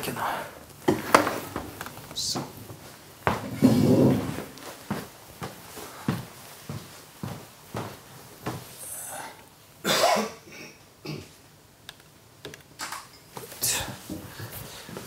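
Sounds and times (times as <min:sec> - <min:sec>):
person coughing: 0:09.8 - 0:11.4.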